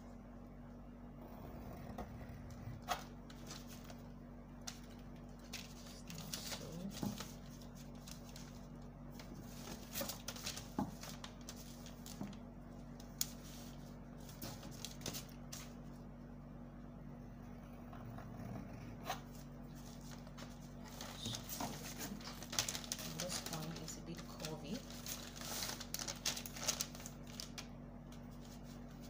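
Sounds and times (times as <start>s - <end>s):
steady low hum: 0.0s - 29.0s
paper rustling: 2.7s - 16.0s, 19.1s - 29.0s.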